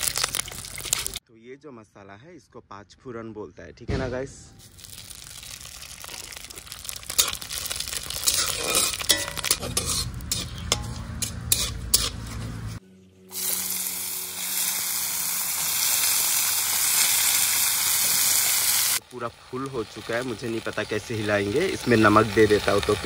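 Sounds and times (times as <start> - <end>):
spices sizzling in hot oil: 0.0 - 1.2, 4.6 - 10.9, 13.3 - 23.0
vegetables frying in oil: 0.0 - 1.2, 4.8 - 9.6, 13.3 - 23.0
spatula stirring: 6.8 - 12.8.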